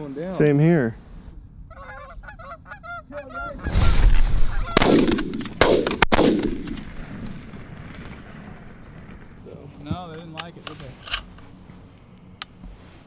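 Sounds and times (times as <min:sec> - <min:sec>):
geese honking: 0:01.7 - 0:05.0
shotgun shots: 0:04.7 - 0:08.5.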